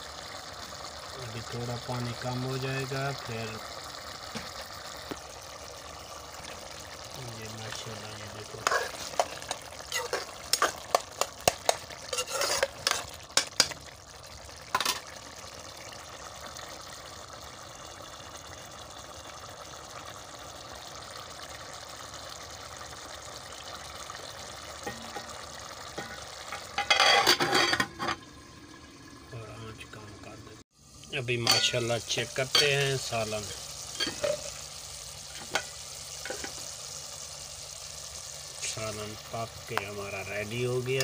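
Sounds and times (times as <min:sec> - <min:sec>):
curry simmering and sizzling: 0:00.0 - 0:41.0
spoon scraping steel pot: 0:08.6 - 0:13.7, 0:26.0 - 0:28.2
steel lid clattering: 0:14.7 - 0:15.0, 0:25.9 - 0:28.2, 0:31.4 - 0:31.8, 0:34.0 - 0:34.5.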